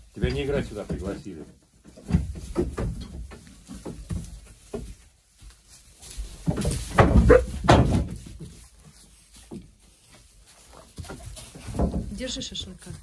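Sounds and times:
animal thuds: 0.2 - 5.1, 6.2 - 8.7, 10.9 - 13.0.

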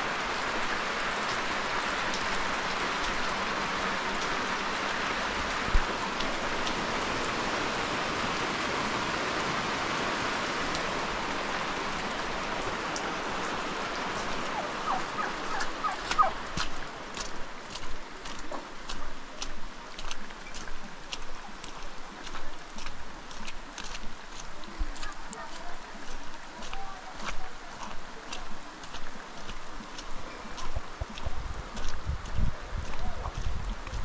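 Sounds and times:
rain falling on wet ground: 0.0 - 34.0
turkey calling: 14.5 - 16.4.

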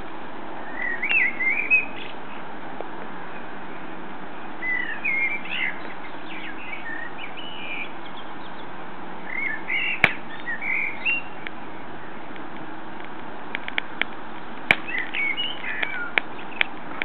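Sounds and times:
steady background hiss: 0.0 - 17.0
blackbird singing: 0.6 - 2.4, 3.3 - 12.3, 14.7 - 16.8.

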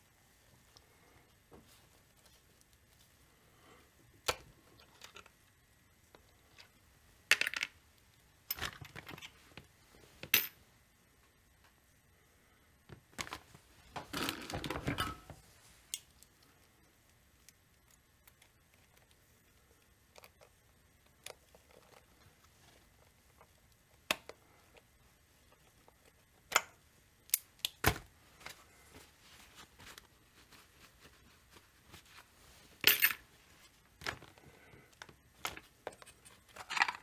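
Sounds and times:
metal parts and tools clattering: 36.5 - 37.0.

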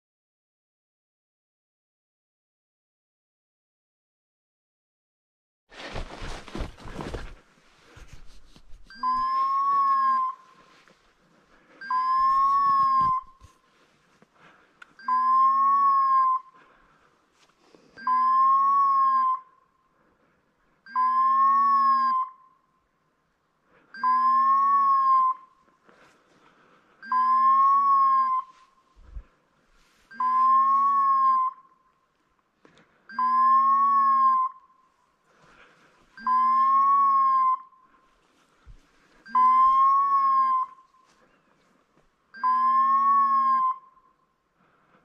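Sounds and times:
electronic collar beeping: 11.8 - 13.2, 42.4 - 43.8.

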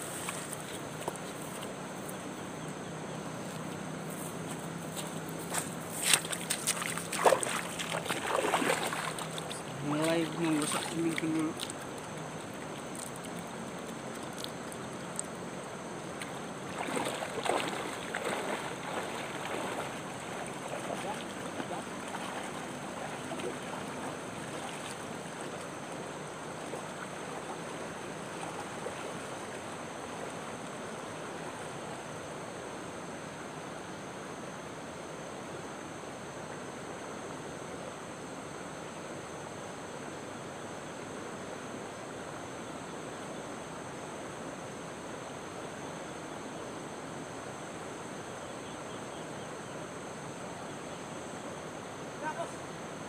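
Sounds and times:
river rushing over stones: 5.7 - 32.5.

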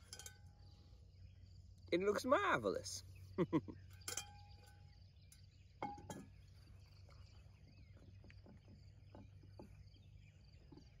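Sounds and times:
metallic clink: 0.0 - 0.6, 4.0 - 6.3
soft chirping: 3.0 - 11.0.

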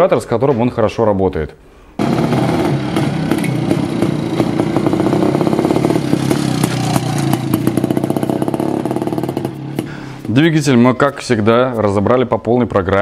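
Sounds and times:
two-stroke motorcycle passing: 2.0 - 10.3.

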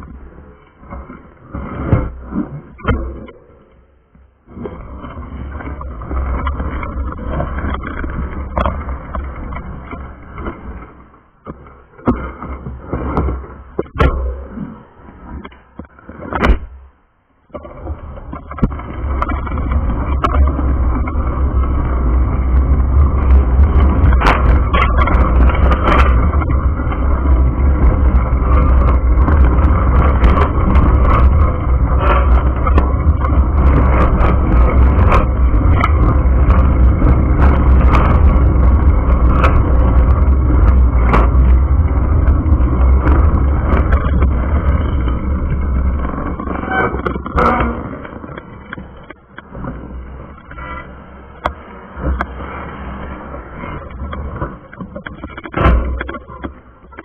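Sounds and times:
road and wind noise in car: 17.9 - 57.0.

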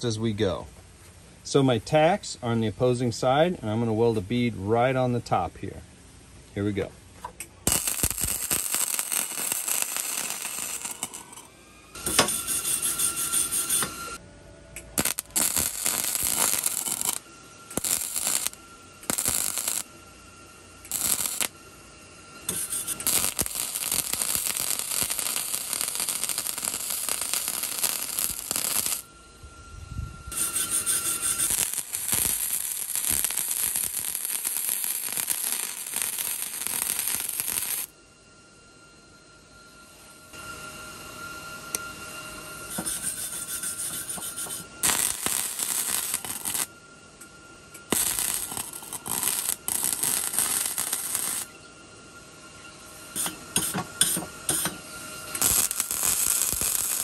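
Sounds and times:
welding arc crackling: 7.4 - 14.2, 14.8 - 20.0, 20.8 - 21.6, 22.4 - 29.1, 30.3 - 37.9, 42.7 - 46.7, 47.8 - 51.6, 53.2 - 57.0.

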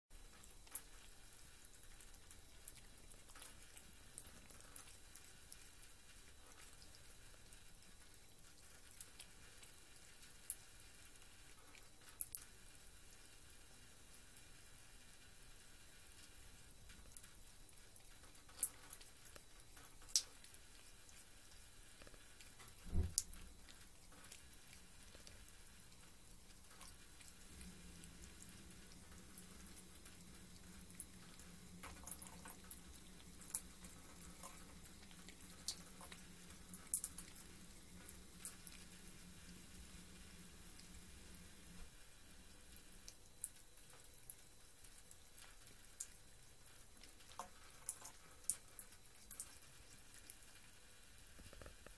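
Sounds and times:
water drips and splashes: 0.1 - 51.9
faint low hum: 0.2 - 51.9
water trickling from tap: 16.0 - 41.9, 42.6 - 51.9.

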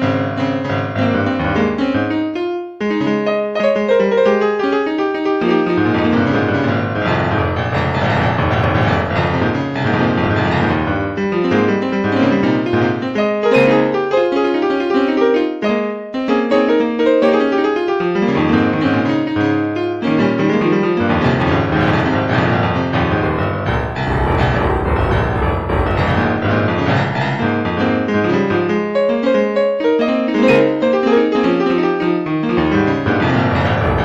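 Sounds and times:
piano-led music: 0.0 - 34.0
sustained low bass: 23.1 - 27.3.

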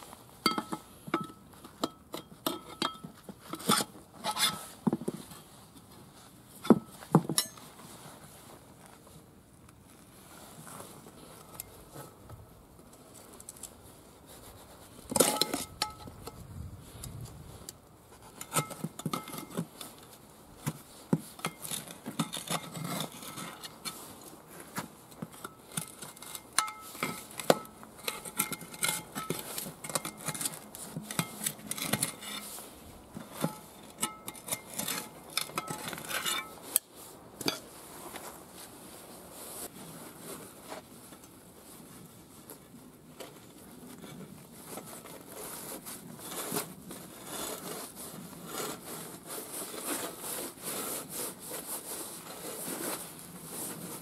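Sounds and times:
tire levers clinking on metal rim: 6.7 - 7.6, 26.6 - 29.4.

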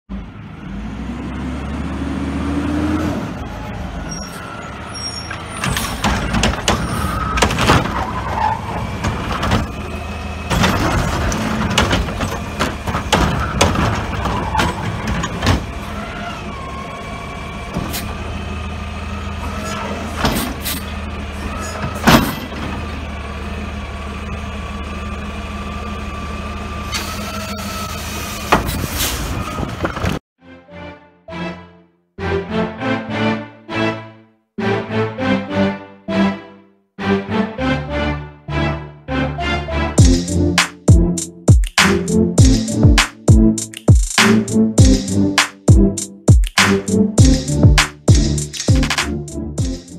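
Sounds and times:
metal clanks and bangs: 5.3 - 16.0, 21.5 - 23.0.

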